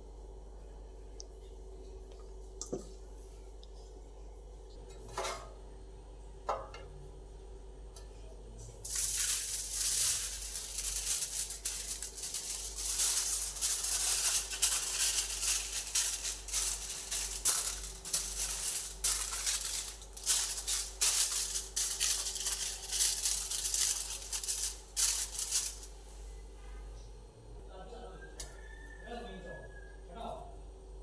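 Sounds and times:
aluminium foil crinkling: 0:08.8 - 0:26.1.

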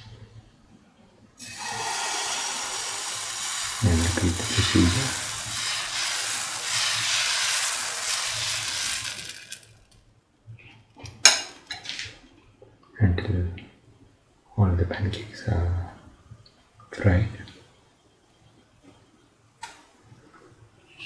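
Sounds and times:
batter sizzling on hot pan: 0:01.4 - 0:10.0.

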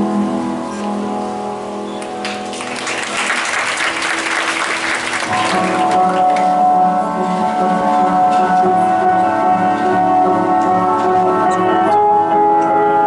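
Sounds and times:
background music with held notes: 0:00.0 - 0:13.0
audience applause: 0:02.2 - 0:06.5.

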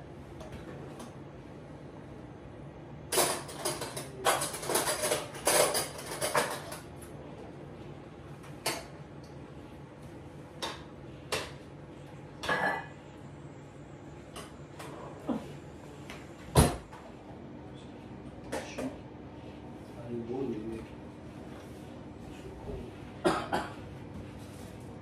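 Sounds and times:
pots and pans clattering: 0:03.1 - 0:06.9.

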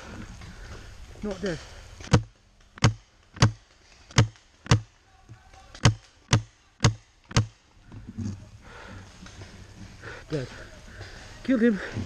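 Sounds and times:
paintball marker shots: 0:02.0 - 0:04.9, 0:05.7 - 0:07.6.

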